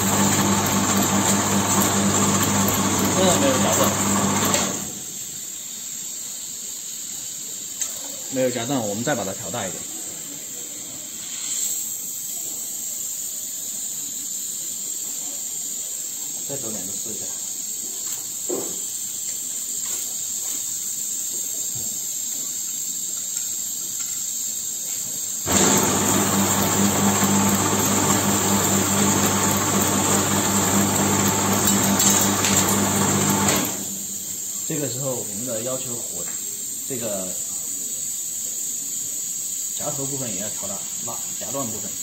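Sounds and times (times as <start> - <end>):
machine humming: 0.0 - 5.0, 25.5 - 34.2
gas burners hissing: 0.0 - 42.0
burner flames hissing: 4.9 - 25.6.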